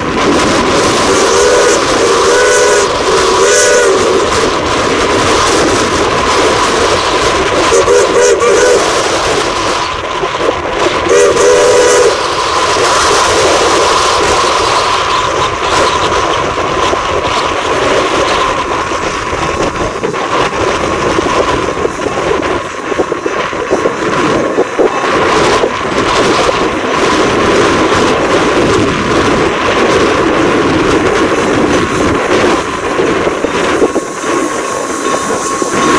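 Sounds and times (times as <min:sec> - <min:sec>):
train wheels on rails: 0:00.0 - 0:35.9
steam locomotive whistle: 0:00.9 - 0:04.4, 0:07.6 - 0:09.4, 0:11.0 - 0:12.5.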